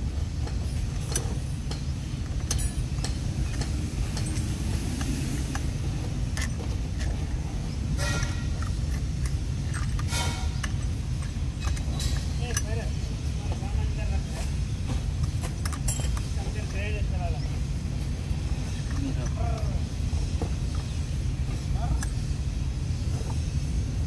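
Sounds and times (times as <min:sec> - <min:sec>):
steady low rumble: 0:00.0 - 0:24.0
metal bolts clicking: 0:00.4 - 0:13.5, 0:15.2 - 0:17.6, 0:18.5 - 0:19.9.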